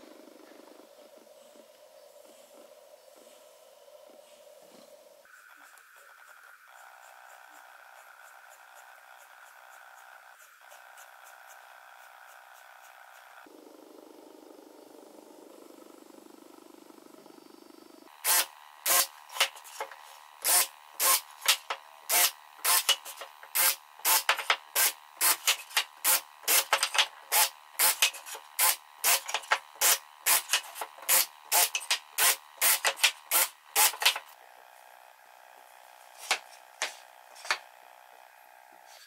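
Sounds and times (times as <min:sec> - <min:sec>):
cordless drill bursts: 0:18.1 - 0:19.6, 0:20.4 - 0:34.3.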